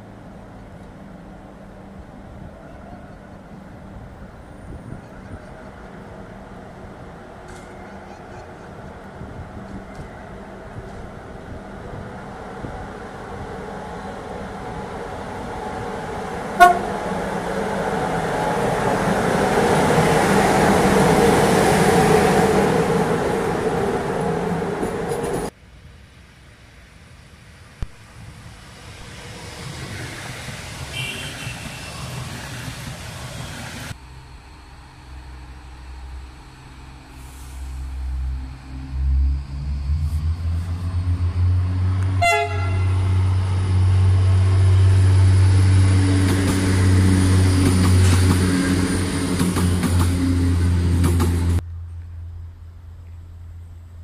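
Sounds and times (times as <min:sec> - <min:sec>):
passenger train rumbling past: 0:00.0 - 0:53.9
locomotive horn toot: 0:16.6 - 0:17.1, 0:30.9 - 0:32.1, 0:42.1 - 0:43.3.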